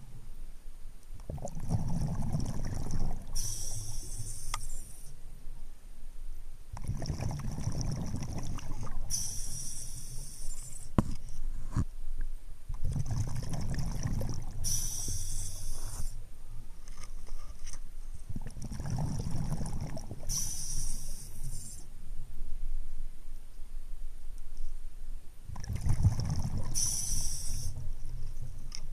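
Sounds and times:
exhaled bubbles rumbling: 1.2s - 4.0s, 6.8s - 9.2s, 12.7s - 16.0s, 18.3s - 20.5s, 25.5s - 28.6s
regulator hiss: 3.3s - 5.2s, 9.1s - 11.0s, 14.6s - 16.2s, 20.3s - 21.9s, 26.8s - 27.8s.

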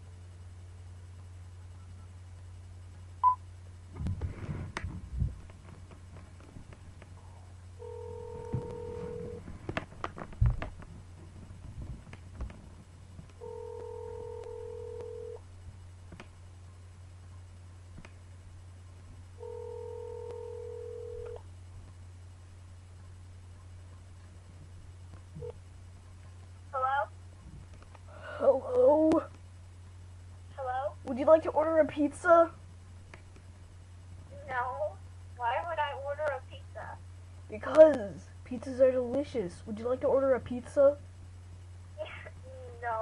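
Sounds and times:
steady low hum: 0.0s - 43.0s
phone ringback tone: 7.8s - 9.4s, 13.4s - 15.4s, 19.4s - 21.4s.

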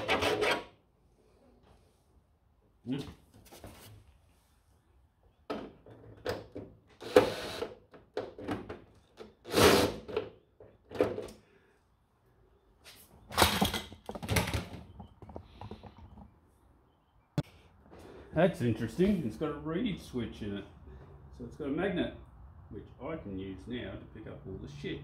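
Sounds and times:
knocks and rattles of plastic and metal: 13.3s - 16.4s.

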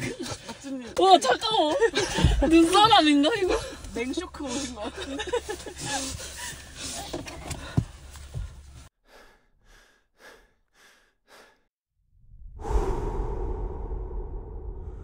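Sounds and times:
person gasping breaths: 9.0s - 11.7s.

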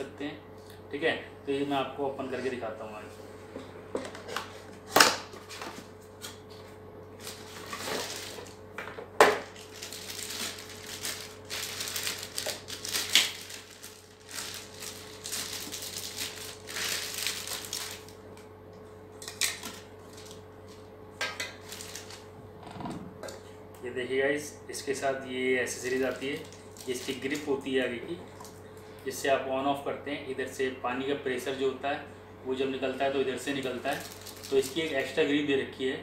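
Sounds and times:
plastic bag crinkling: 7.2s - 8.6s, 9.5s - 18.3s, 21.6s - 22.2s, 25.8s - 27.5s, 33.4s - 35.2s.

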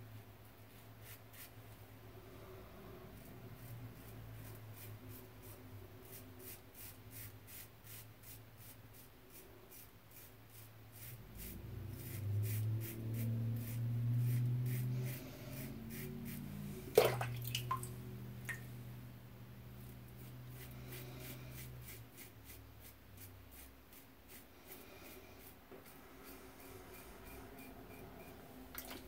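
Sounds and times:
water running: 16.9s - 18.7s, 28.7s - 29.0s.

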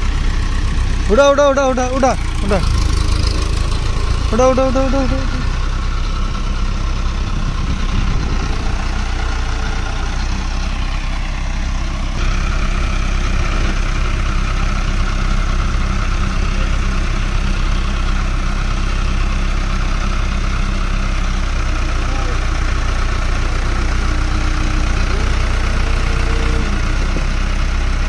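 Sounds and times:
diesel tractor engine running: 0.0s - 28.0s.

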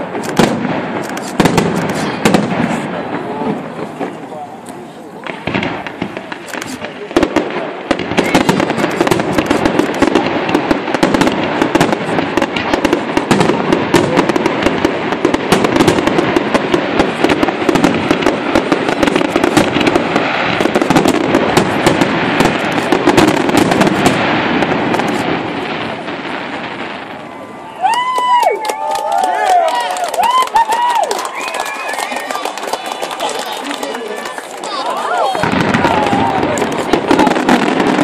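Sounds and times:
fireworks bursting and crackling: 0.0s - 38.0s.

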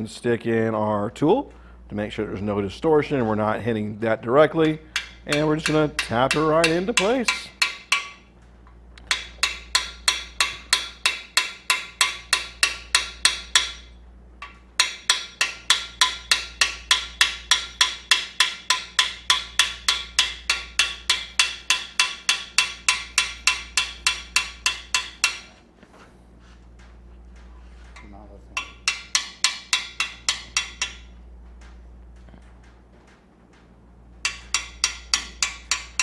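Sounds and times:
hammer tapping on metal: 4.6s - 8.3s, 9.0s - 25.6s, 27.9s - 31.8s, 34.2s - 36.0s.

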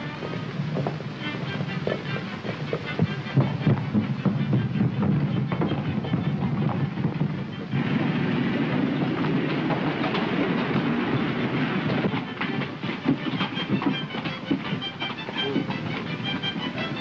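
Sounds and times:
vehicle rumbling and clattering: 0.0s - 17.0s.

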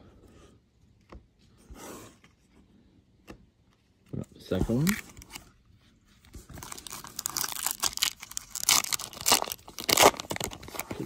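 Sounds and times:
plastic foil wrapper tearing: 6.6s - 11.0s.

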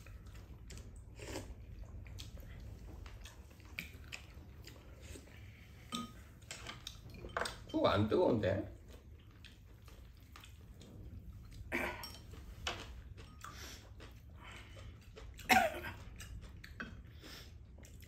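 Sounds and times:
chewing: 0.0s - 7.7s, 8.7s - 18.0s
utensils clinking in ceramic bowls: 5.9s - 8.4s, 11.8s - 13.6s.

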